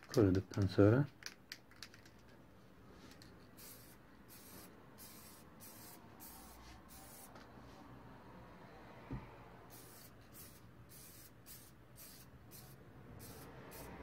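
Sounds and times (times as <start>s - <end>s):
aerosol can spraying: 3.6s - 7.3s, 9.7s - 14.0s.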